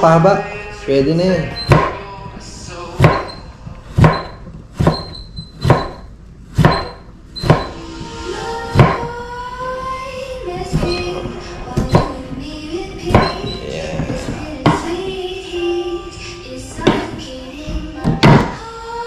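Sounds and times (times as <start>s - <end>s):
background music: 0.0s - 19.0s
knife chopping on wooden board: 1.7s - 2.0s, 3.0s - 3.4s, 4.0s - 6.0s, 6.6s - 7.8s, 8.7s - 9.1s.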